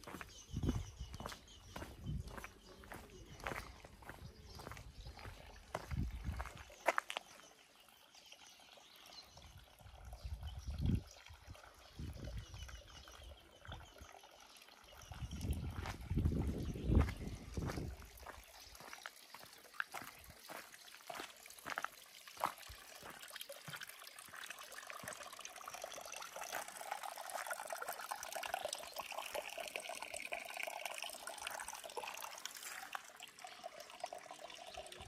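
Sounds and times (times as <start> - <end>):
water running: 8.6 - 35.0.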